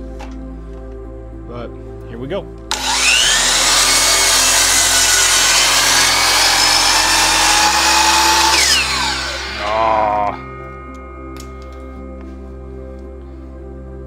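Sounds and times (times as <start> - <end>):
miter saw cutting wood: 2.7 - 10.4
saw blade spinning down whine: 2.7 - 11.4.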